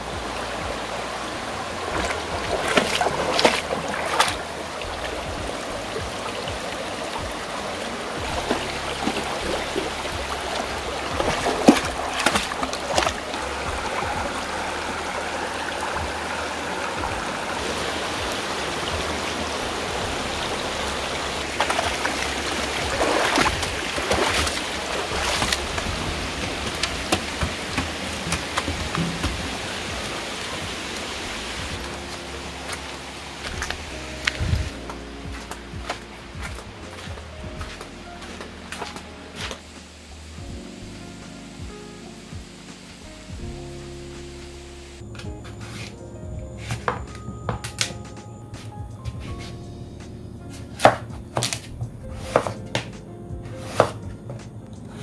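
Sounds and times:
splashing through water: 0.0s - 41.0s
stream running over stones: 0.0s - 46.0s, 50.5s - 55.0s.

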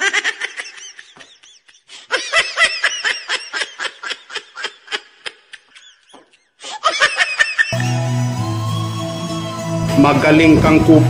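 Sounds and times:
person laughing high-pitched: 0.0s - 7.8s.

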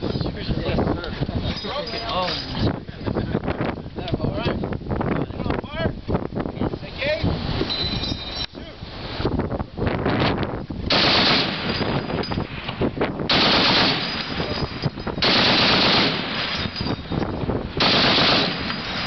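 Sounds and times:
machine gun bursts: 10.9s - 12.0s, 13.3s - 14.6s, 15.2s - 16.8s, 17.8s - 19.0s.

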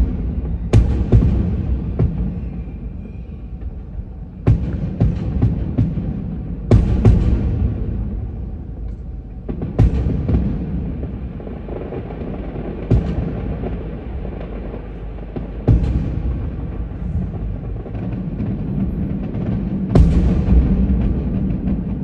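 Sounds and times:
fireworks bursting with booms: 0.0s - 22.0s
low rumble: 15.6s - 22.0s.

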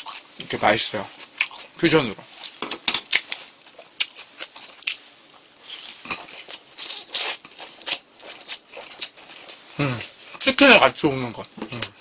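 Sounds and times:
crisp chewing crunches: 0.0s - 10.6s.

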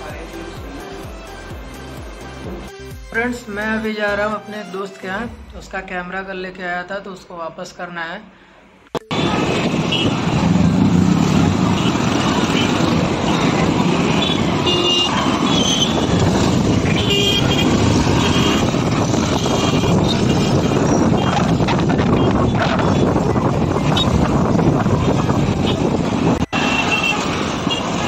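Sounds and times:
wind and road noise: 8.8s - 28.0s
vehicle horn toots: 9.1s - 10.3s, 11.7s - 16.2s, 16.8s - 21.4s, 25.6s - 28.0s.

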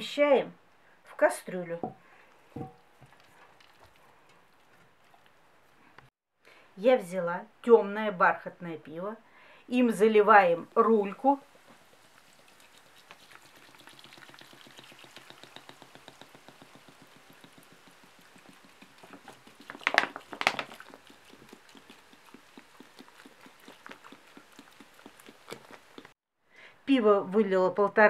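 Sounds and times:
foam fizzing and crackling: 10.4s - 26.2s
beer pouring and splashing: 11.3s - 26.2s.

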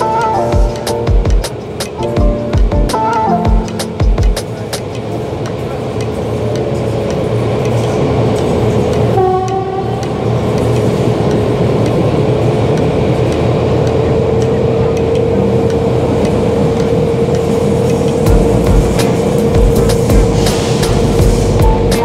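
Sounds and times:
diesel locomotive running: 0.0s - 22.0s
train wheels on rails: 0.0s - 22.0s
train horn blast: 9.1s - 10.1s.

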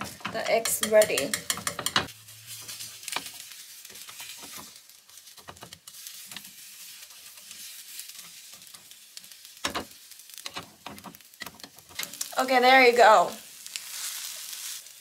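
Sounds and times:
chopsticks tapping a pan: 0.0s - 2.1s, 9.6s - 12.2s
egg sizzling in a pan: 0.0s - 15.0s.

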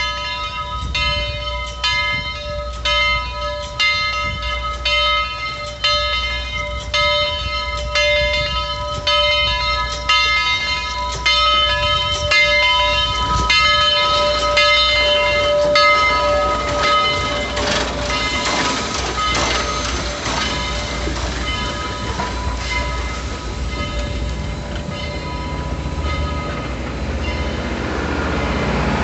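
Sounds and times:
locomotive bell ringing: 0.0s - 29.0s
locomotive running gear: 0.0s - 29.0s
steam hissing: 10.6s - 29.0s.

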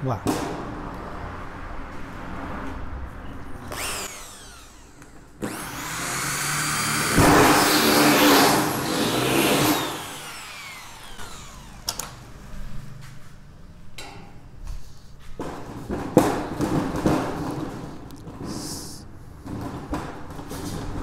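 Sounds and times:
electric drill whine: 3.7s - 12.2s.

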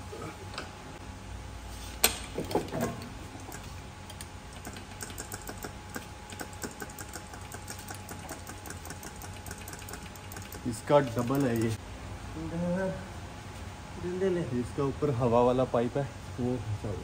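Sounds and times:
metal tools knocking and clicking: 2.0s - 11.8s.

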